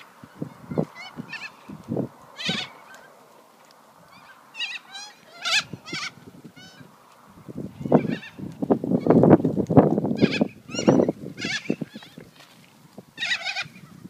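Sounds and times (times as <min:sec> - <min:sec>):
birds screeching squawks: 0:00.2 - 0:01.8, 0:02.4 - 0:03.1, 0:04.1 - 0:06.9, 0:07.7 - 0:08.4, 0:10.2 - 0:12.2, 0:13.2 - 0:14.0.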